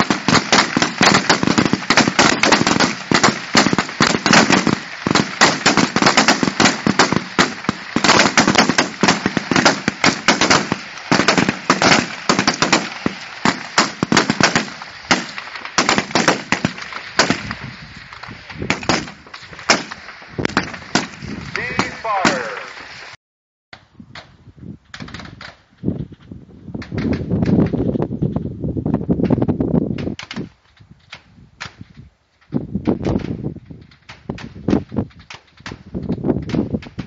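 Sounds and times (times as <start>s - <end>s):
rifles firing: 0.0s - 17.6s, 18.6s - 22.8s.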